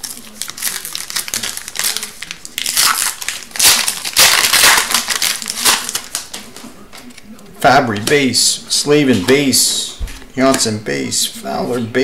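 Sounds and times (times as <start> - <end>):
foil wrapper tearing and crinkling: 0.0 - 7.2.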